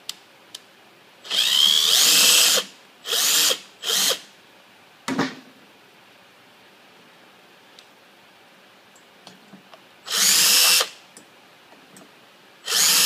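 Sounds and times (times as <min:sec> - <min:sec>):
cordless drill whining: 0:01.3 - 0:04.2, 0:10.1 - 0:11.0, 0:12.6 - 0:13.0.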